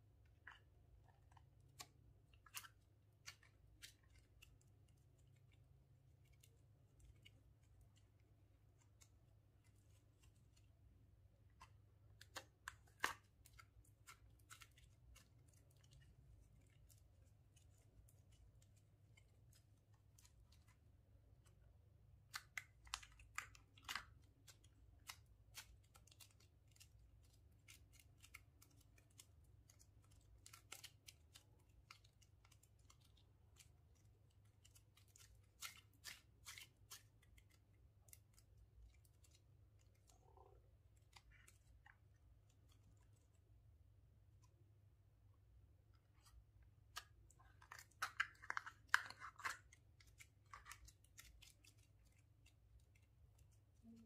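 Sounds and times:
slime clicks and crackles: 46.8 - 53.2.

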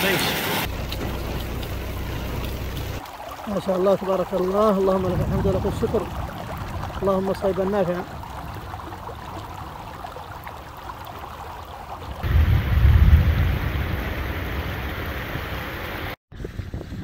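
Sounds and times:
churning water cascade: 0.0 - 16.2
flood water rushing over ground: 0.0 - 16.2
heavy low rumble: 12.2 - 15.3.

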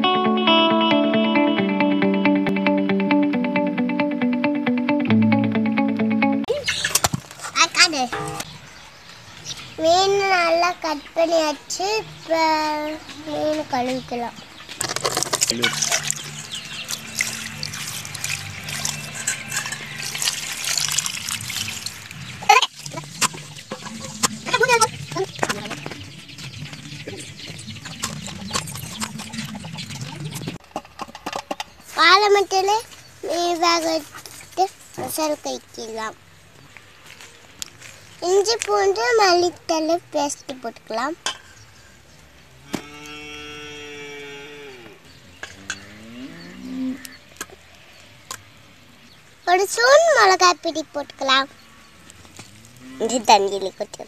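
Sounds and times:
water splashing in metal bowl: 15.4 - 25.2.

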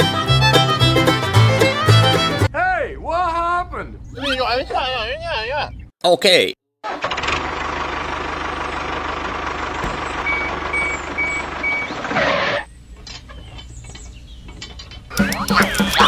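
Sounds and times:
vehicle engine running: 6.9 - 16.0
reversing alarm beeps: 10.2 - 12.0
clicks and rattles: 13.0 - 16.0.

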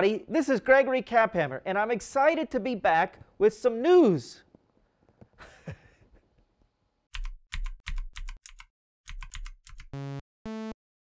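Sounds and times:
keyboard keystroke clicks: 7.1 - 9.9.

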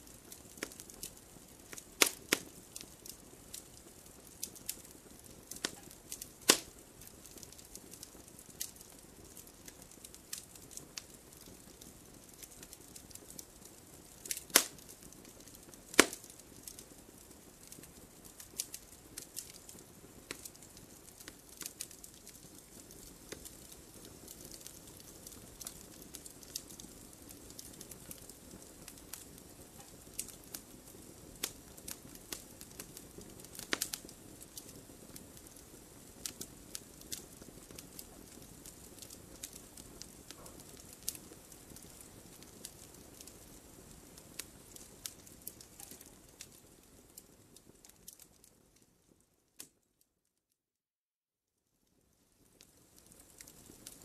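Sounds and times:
campfire crackling and popping: 0.0 - 49.8, 51.9 - 54.0
soft fire hiss: 0.0 - 49.9, 51.8 - 54.0.

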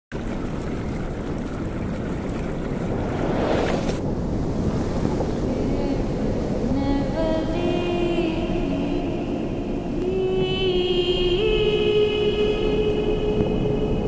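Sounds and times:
water rushing over rocks: 0.1 - 5.4
low windy rumble: 0.1 - 14.0.

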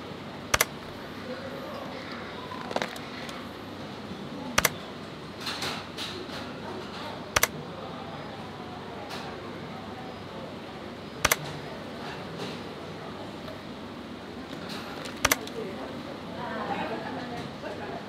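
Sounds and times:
sharp double clicks: 0.5 - 0.8, 4.6 - 4.8, 7.4 - 7.6, 11.2 - 11.5, 15.1 - 15.5
faint murmuring voices: 0.8 - 18.0.

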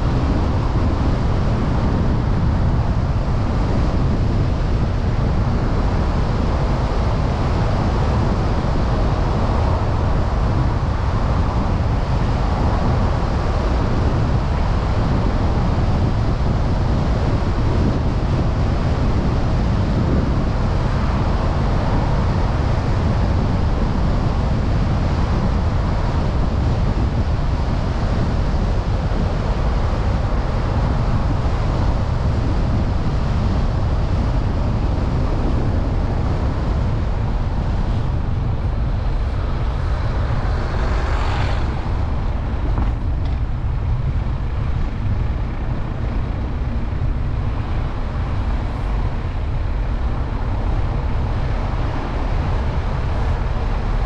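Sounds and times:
car road and wind rumble: 0.0 - 54.0
passing vehicle whoosh: 37.0 - 45.4.

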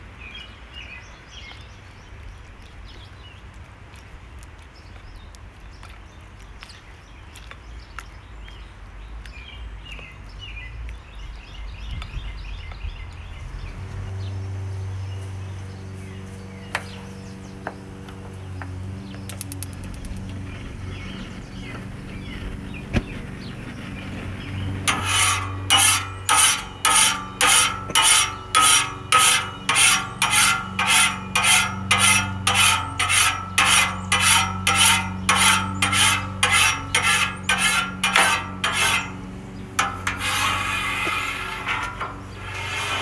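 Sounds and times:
low hum: 13.4 - 43.0
metal scraper rasping on griddle: 24.6 - 43.0.

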